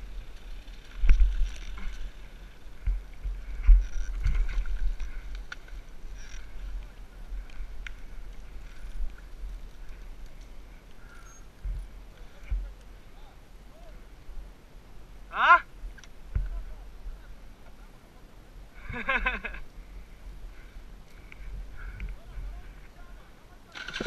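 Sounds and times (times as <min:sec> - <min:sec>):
wind rumble on microphone: 0:00.0 - 0:14.6.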